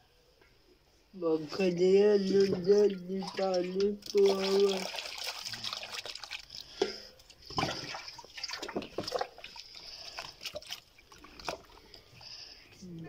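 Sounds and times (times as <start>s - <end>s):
water sloshing and splashing: 2.2s - 12.2s.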